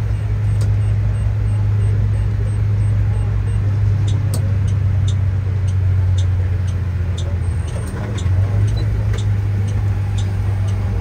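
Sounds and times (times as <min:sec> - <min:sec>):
engine and road drone: 0:00.0 - 0:11.0
light regular ticks: 0:04.0 - 0:11.0.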